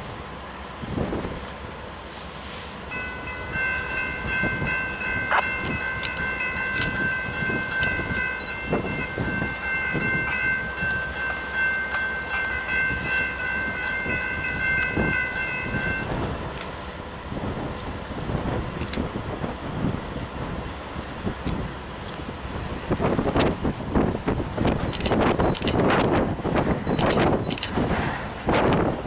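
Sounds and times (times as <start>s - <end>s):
diesel locomotive rumble: 0.0s - 29.0s
train wheels squealing on rail: 28.2s - 29.0s.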